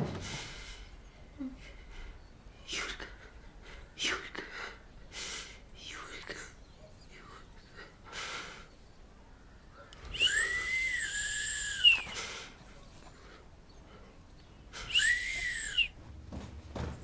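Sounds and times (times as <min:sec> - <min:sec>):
person whistling: 0:10.1 - 0:12.1, 0:14.9 - 0:16.0.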